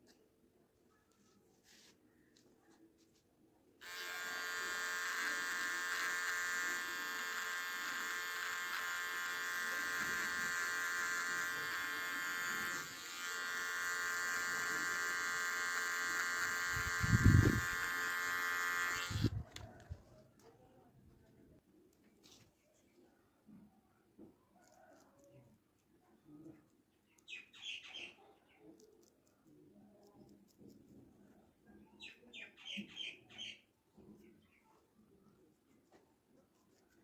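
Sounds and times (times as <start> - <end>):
beard trimmer buzzing: 3.8 - 19.7.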